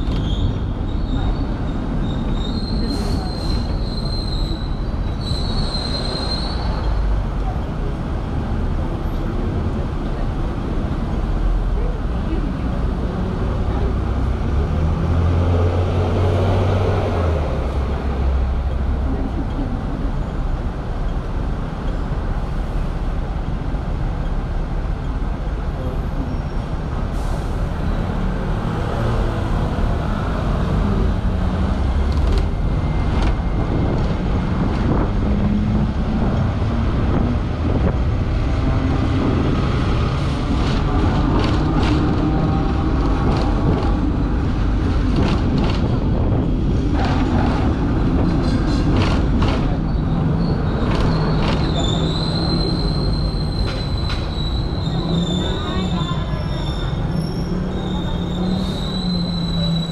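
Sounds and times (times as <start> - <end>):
tram rumbling and rattling: 0.0 - 59.9
wheels clicking on rails: 38.4 - 54.4.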